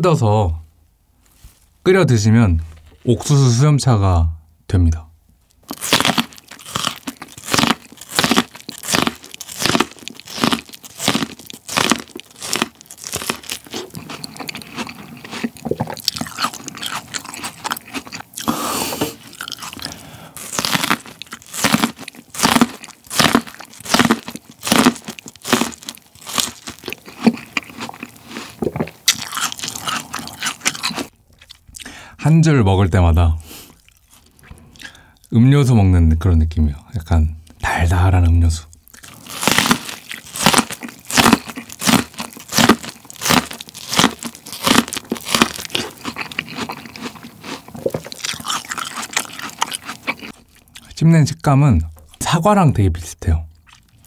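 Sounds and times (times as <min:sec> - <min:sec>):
corn kernels crunching: 0:05.6 - 0:31.9, 0:38.7 - 0:51.0
chewing: 0:05.6 - 0:32.0, 0:33.6 - 0:35.3, 0:38.7 - 0:51.0, 0:53.5 - 0:54.0.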